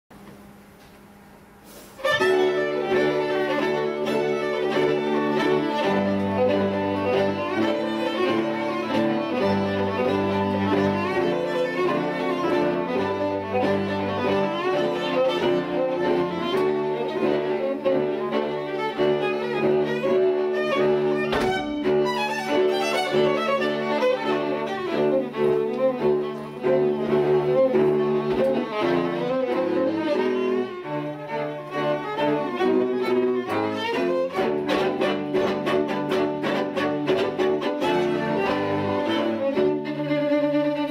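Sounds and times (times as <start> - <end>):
low cello line: 2.0 - 40.9
string quartet playing a lively dance tune: 2.0 - 40.9.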